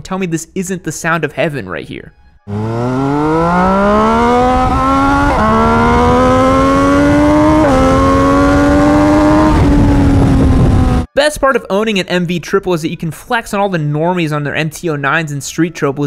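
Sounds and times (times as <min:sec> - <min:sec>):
motorcycle engine accelerating: 0:02.5 - 0:11.1.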